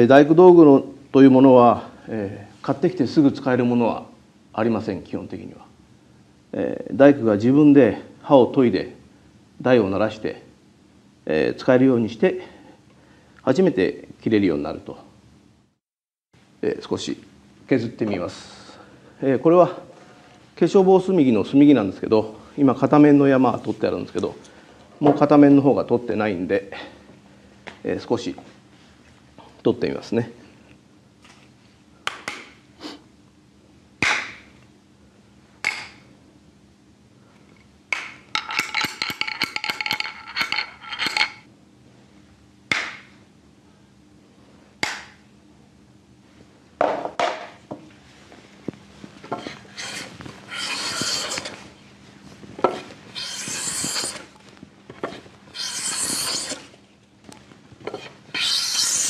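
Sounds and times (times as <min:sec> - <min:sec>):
hand plane shaving wood: 0:49.7 - 0:51.6, 0:53.2 - 0:54.3, 0:55.6 - 0:56.7.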